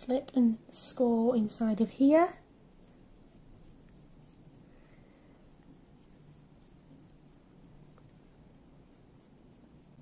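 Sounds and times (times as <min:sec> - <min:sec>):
knife scratching clay: 0:02.8 - 0:10.0.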